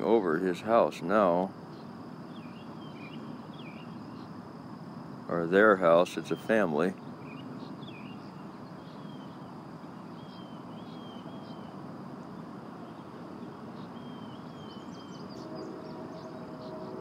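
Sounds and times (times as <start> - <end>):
steady background hiss: 0.0 - 17.0
bird chirping: 1.7 - 4.4, 6.2 - 11.8, 12.8 - 17.0.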